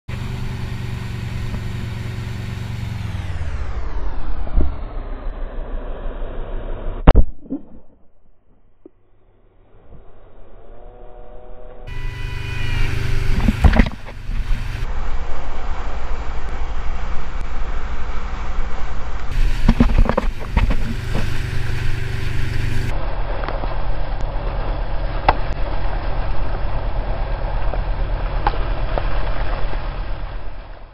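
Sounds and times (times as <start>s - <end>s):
heavy low rumble: 0.1s - 30.9s
water rushing and splashing: 12.8s - 30.9s.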